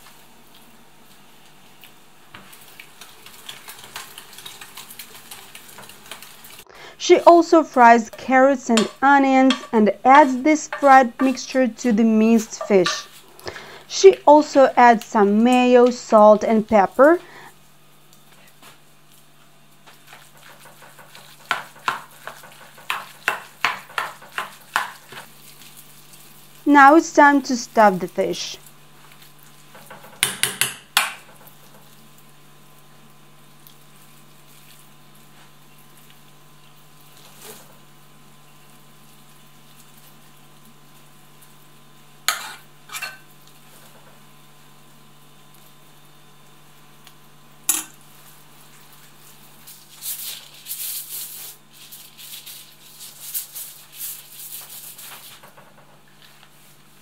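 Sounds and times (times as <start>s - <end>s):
aluminium foil crinkling: 0.1s - 6.6s, 24.2s - 26.7s, 31.5s - 42.0s, 48.0s - 55.4s
low steady hum: 6.2s - 20.6s
metal spoon knocking on saucepan: 8.7s - 9.8s, 29.8s - 31.3s.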